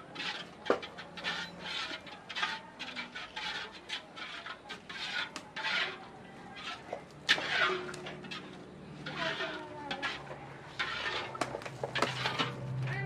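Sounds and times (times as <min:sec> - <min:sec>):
metal spatula scraping a wok: 0:00.0 - 0:13.0.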